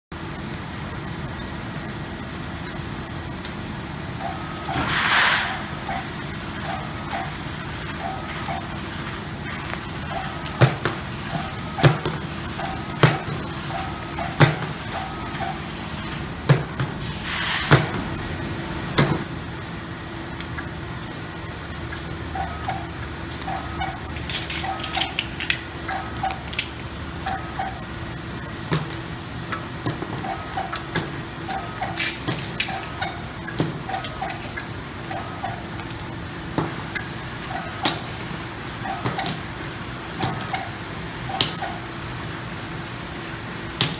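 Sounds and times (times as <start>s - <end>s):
conveyor and motor hum: 0.1s - 43.9s
short hisses: 4.8s - 5.6s.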